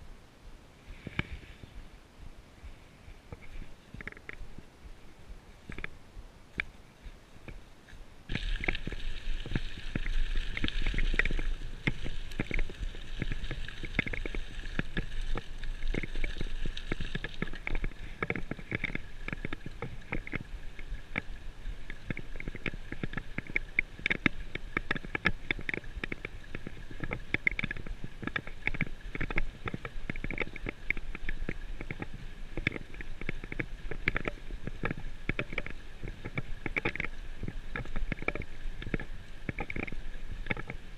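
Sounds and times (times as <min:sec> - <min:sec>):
bicycle tyres rumbling: 0:08.2 - 0:40.9.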